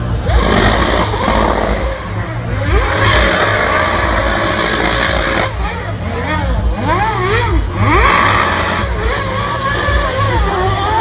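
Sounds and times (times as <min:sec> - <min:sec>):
race car engine revving: 0:00.0 - 0:11.0.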